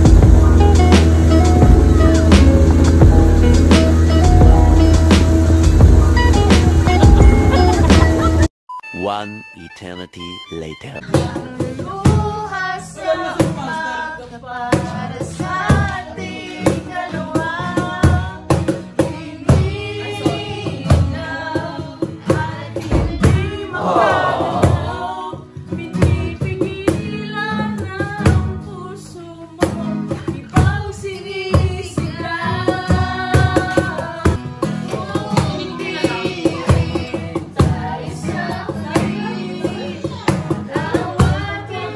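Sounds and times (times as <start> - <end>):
acoustic guitar strumming: 0.0 - 12.4
cajon beat: 0.0 - 12.8, 14.6 - 28.6, 29.6 - 41.9
woman singing: 11.1 - 41.9.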